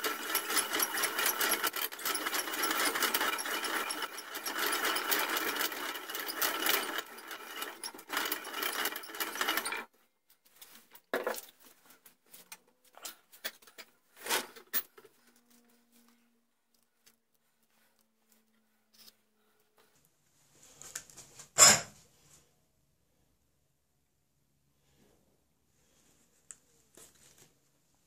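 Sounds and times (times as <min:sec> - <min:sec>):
reamer rattling inside metal barrel: 0:00.0 - 0:09.9.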